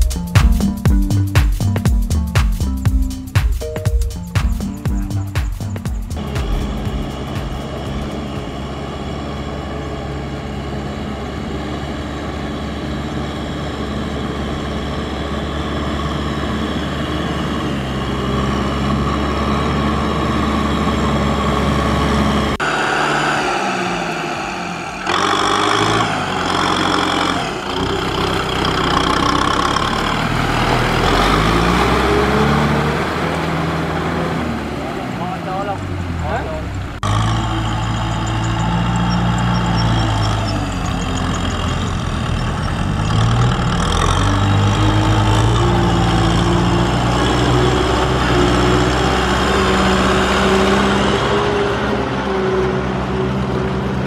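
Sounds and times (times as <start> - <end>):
tractor diesel engine revving: 4.2 - 54.0.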